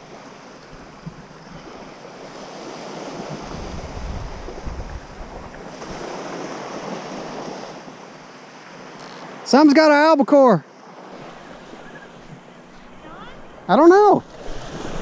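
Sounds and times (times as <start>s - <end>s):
small waves washing on beach: 0.0s - 15.0s
wind on microphone: 3.0s - 7.5s, 11.2s - 15.0s.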